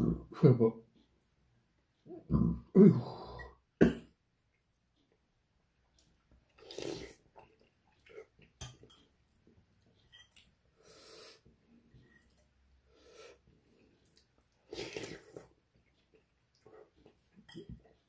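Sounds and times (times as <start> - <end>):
man burping: 2.1 - 4.1
slurping noodles: 6.5 - 7.4, 14.6 - 15.5.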